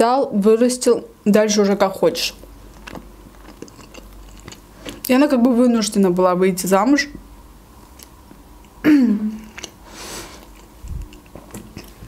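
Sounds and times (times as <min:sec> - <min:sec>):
woman humming: 0:08.8 - 0:09.5
soft breath: 0:09.8 - 0:10.5.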